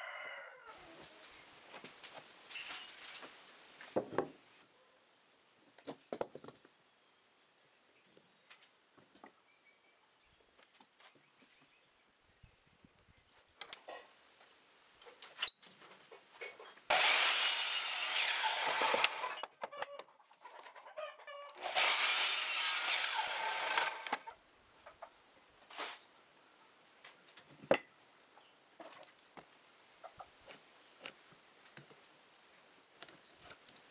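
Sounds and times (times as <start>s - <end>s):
rooster crowing: 0.0s - 0.9s.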